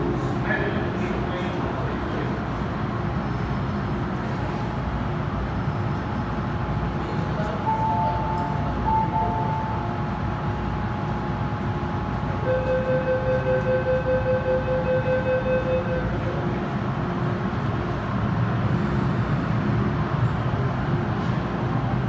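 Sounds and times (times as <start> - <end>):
train equipment hum: 0.0 - 22.0
two-note electronic chime: 7.7 - 10.0
rapid pulsing electronic beep: 7.7 - 10.1, 12.5 - 16.2.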